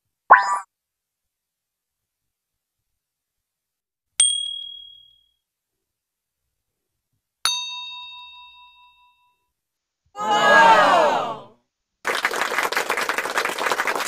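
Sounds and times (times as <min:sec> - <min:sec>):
ringing bell-like ding: 0:04.2 - 0:05.4, 0:07.5 - 0:09.4.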